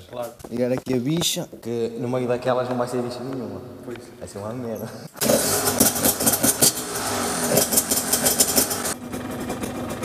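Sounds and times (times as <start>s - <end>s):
dirt bike engine revving: 5.2s - 10.0s.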